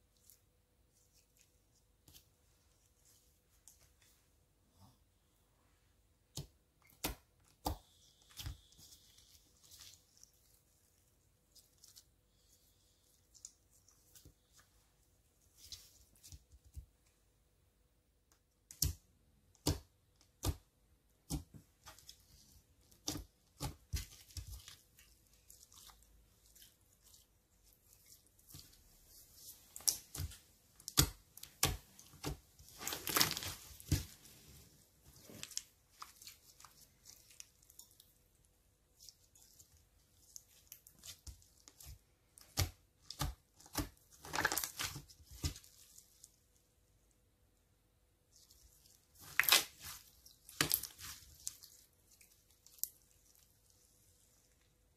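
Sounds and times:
slime crackling and popping: 0:28.2 - 0:34.2, 0:40.2 - 0:46.3, 0:48.6 - 0:53.7.

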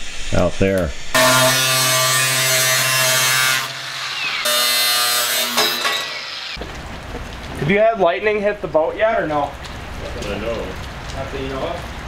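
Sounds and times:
angle grinder grinding metal: 0:01.2 - 0:06.6.

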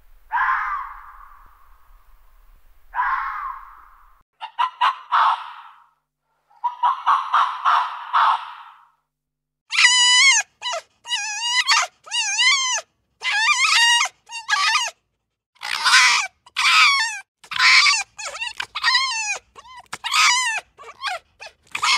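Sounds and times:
fox calling: 0:00.3 - 0:01.8, 0:02.9 - 0:05.9, 0:09.7 - 0:15.0, 0:15.6 - 0:21.9.

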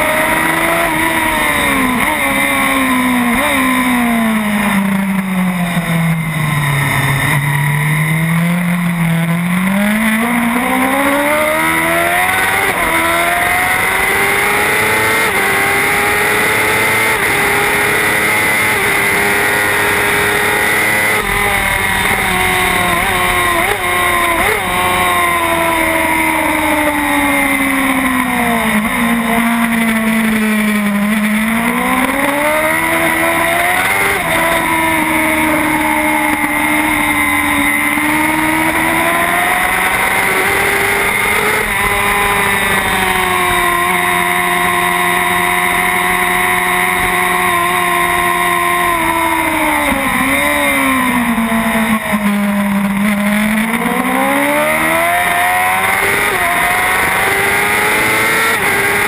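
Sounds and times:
racing motorcycle engine revving: 0:00.0 - 0:59.0.

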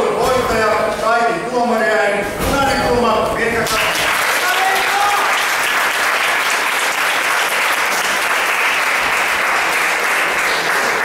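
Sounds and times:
spectators applauding: 0:03.6 - 0:11.0.

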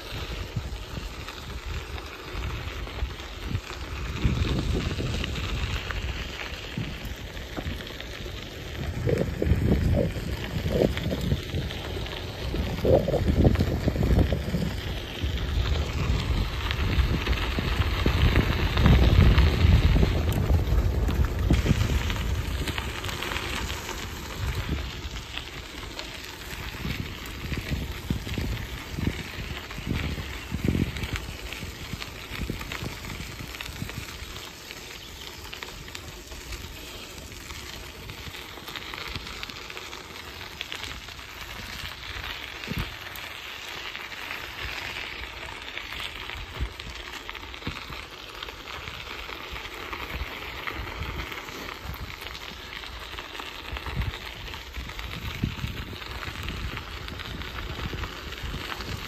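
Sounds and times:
bicycle tyres on gravel: 0:00.0 - 0:59.0.

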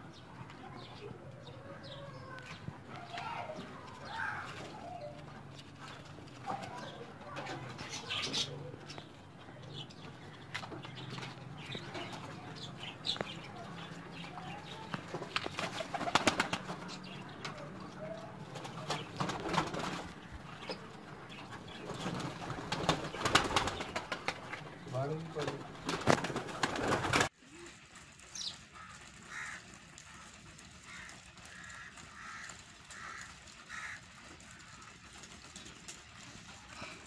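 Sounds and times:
wing flapping: 0:14.2 - 0:17.6, 0:18.4 - 0:27.3.

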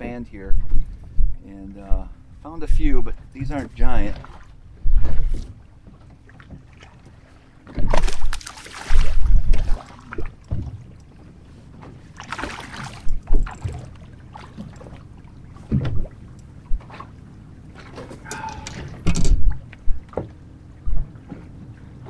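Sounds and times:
wind buffeting microphone: 0:00.0 - 0:05.5, 0:08.9 - 0:10.9
water lapping against boat: 0:00.0 - 0:22.0.

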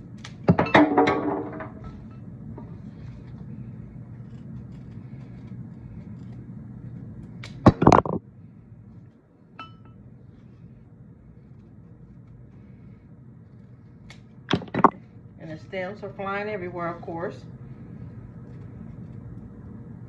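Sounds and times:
low steady hum: 0:00.0 - 0:20.0
glass clinking: 0:09.6 - 0:10.0
glassy ring: 0:09.6 - 0:10.0.

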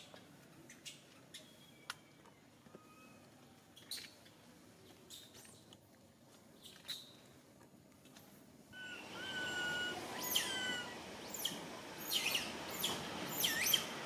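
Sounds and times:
baby monkey crying: 0:08.8 - 0:13.8.

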